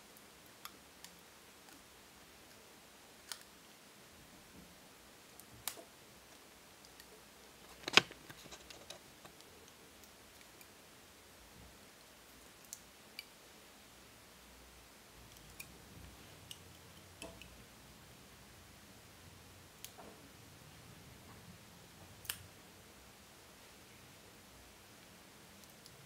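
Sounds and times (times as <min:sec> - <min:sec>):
tape handling clicks and ticks: 0:06.9 - 0:09.8.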